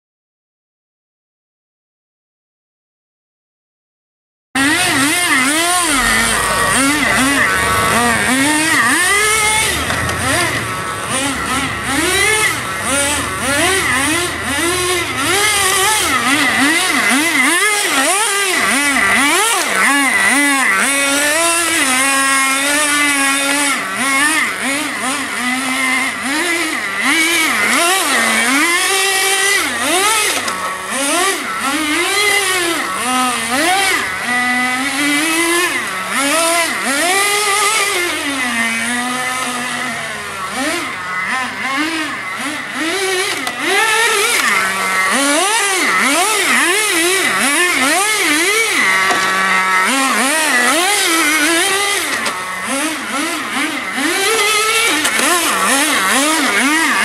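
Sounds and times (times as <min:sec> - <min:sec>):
radio-controlled car revving: 0:04.6 - 0:57.0.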